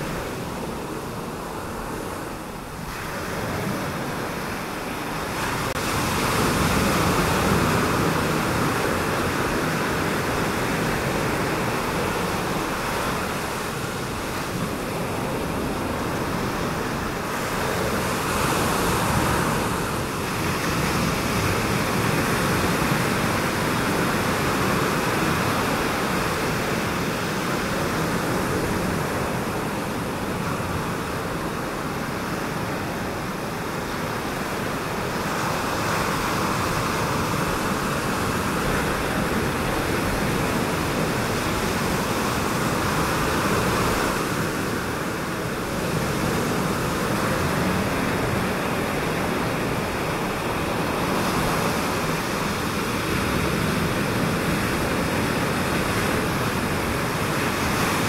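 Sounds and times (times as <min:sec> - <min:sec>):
ocean waves breaking: 0:00.0 - 0:58.0.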